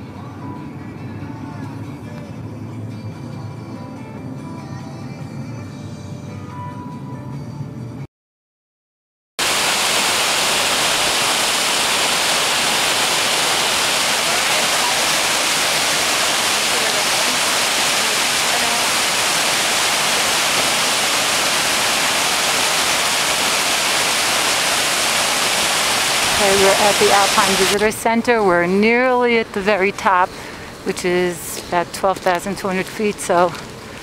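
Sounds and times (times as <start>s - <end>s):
waterfall roaring: 9.4s - 28.0s.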